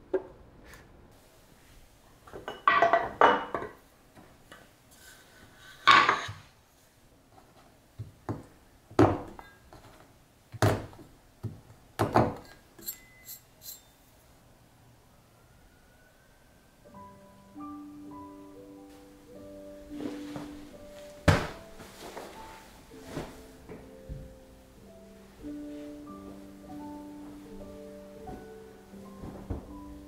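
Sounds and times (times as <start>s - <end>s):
light clinks: 12.8s - 14.0s.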